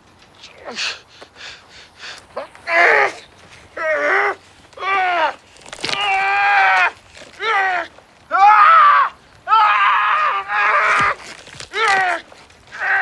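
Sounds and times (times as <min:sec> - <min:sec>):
man screaming in pain: 0:03.8 - 0:13.0.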